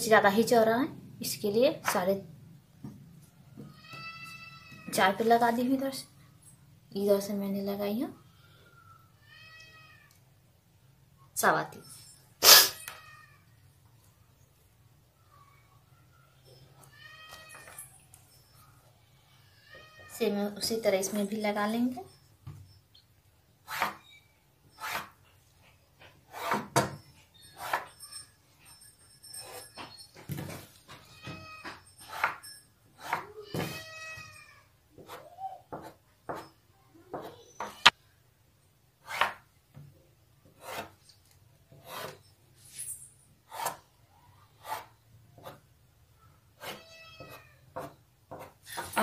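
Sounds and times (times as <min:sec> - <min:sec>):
chalk scraping on fabric: 0:24.8 - 0:25.2.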